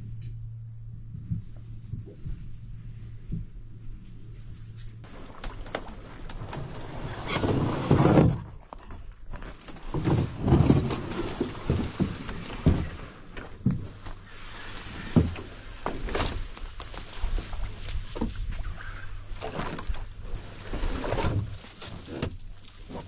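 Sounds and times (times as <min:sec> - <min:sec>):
canoe hull scraping through brush: 0:05.0 - 0:08.6, 0:09.5 - 0:23.0.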